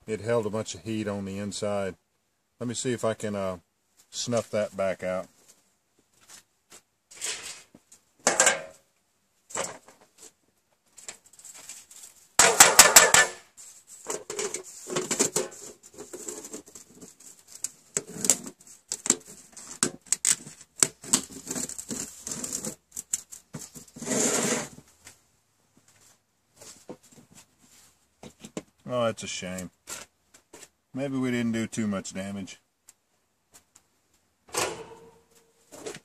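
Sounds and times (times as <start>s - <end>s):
metal tin lid clattering: 8.3s - 8.8s, 34.5s - 36.0s.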